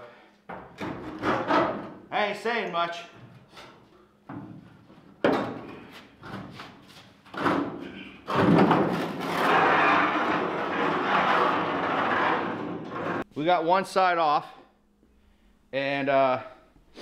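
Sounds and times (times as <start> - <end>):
metal scraping on concrete: 9.1 - 13.2.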